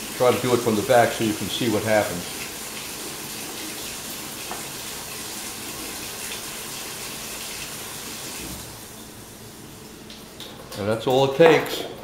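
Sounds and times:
faucet running into a steel sink: 0.0s - 9.1s.

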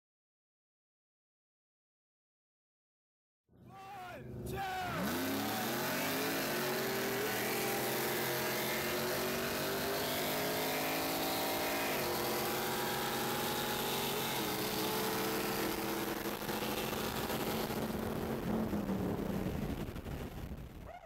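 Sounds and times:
car engines at full throttle: 3.7s - 21.0s
wind and road noise: 4.2s - 21.0s.

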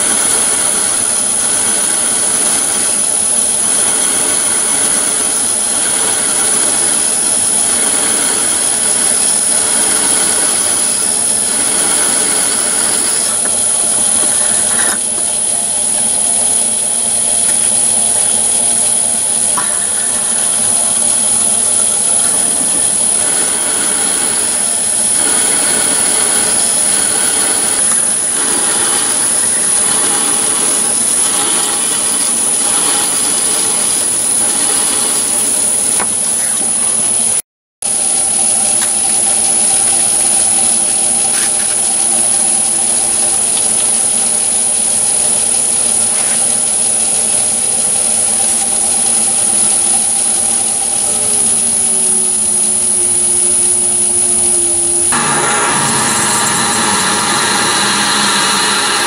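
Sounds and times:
lathe drilling steel: 0.0s - 59.0s.

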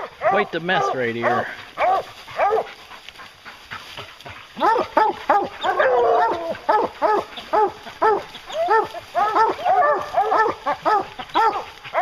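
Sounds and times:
dogs barking: 0.0s - 12.0s
hounds baying: 0.0s - 12.0s.

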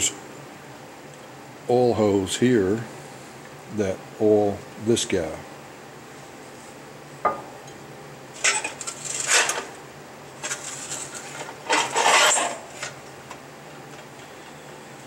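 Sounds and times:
metal parts clinking and rattling: 10.4s - 12.9s.

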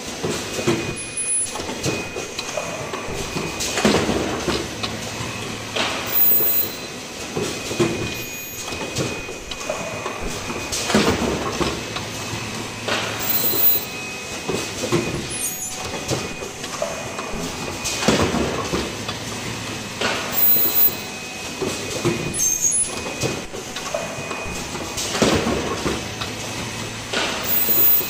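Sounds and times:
production line mechanical clatter: 0.0s - 28.0s
machine clunks: 0.2s - 19.2s.

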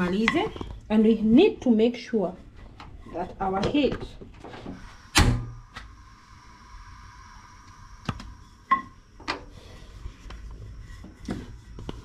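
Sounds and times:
faint hiss: 4.5s - 11.6s
thin whine: 4.8s - 12.0s
gas burner lighting pop: 5.1s - 5.9s.

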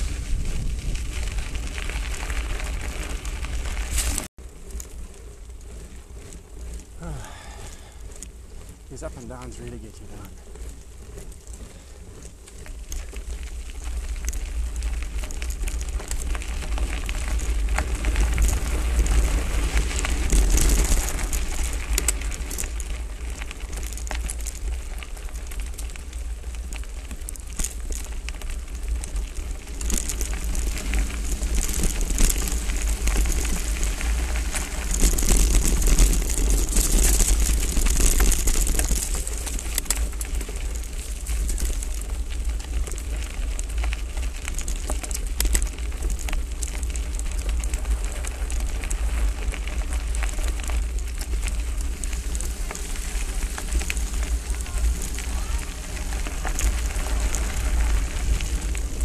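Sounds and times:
wind buffeting microphone: 0.0s - 4.3s
bike rattling: 0.0s - 59.0s
tyres crunching over gravel: 0.0s - 59.0s.

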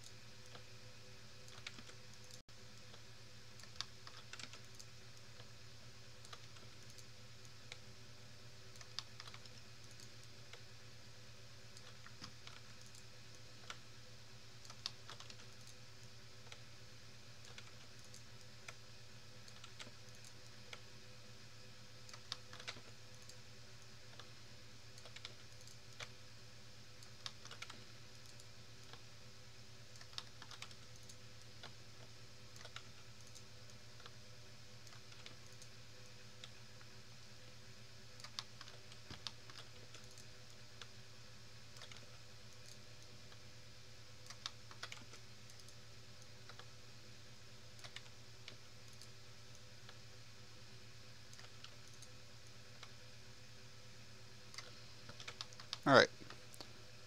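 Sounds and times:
keyboard and mouse clicking: 1.4s - 3.0s, 3.6s - 5.5s, 6.2s - 7.8s, 8.7s - 10.6s, 11.8s - 13.8s, 14.6s - 15.8s, 17.4s - 18.8s, 19.4s - 20.8s, 22.0s - 23.4s, 25.0s - 26.1s, 27.0s - 29.0s, 29.9s - 31.8s, 32.5s - 34.2s, 34.8s - 35.7s, 38.2s - 40.9s, 41.8s - 43.4s, 44.2s - 45.8s, 46.4s - 46.7s, 47.8s - 49.1s, 51.3s - 52.1s, 54.5s - 56.7s.

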